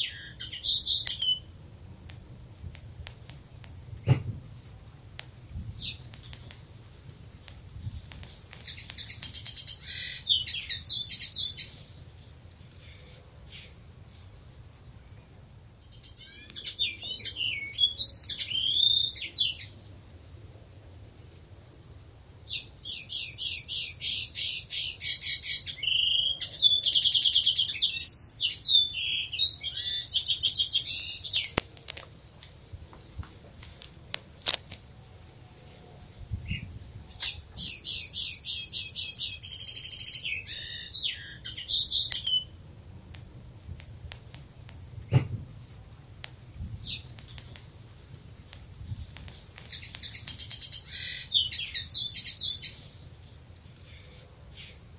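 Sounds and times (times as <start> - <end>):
robin singing: 0.0 - 15.2, 15.8 - 20.0, 21.9 - 33.2, 36.3 - 43.7, 46.4 - 48.0, 49.2 - 53.2.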